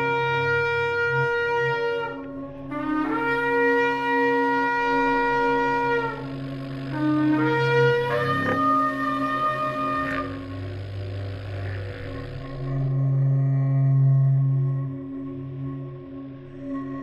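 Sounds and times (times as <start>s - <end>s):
ram's horn blasts: 0.0s - 14.7s
steady low drone: 0.0s - 17.0s.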